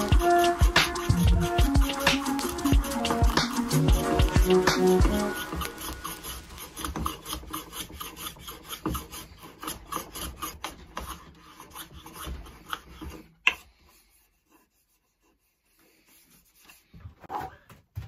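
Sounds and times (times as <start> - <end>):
hand plane shaving wood: 0.0 - 17.0.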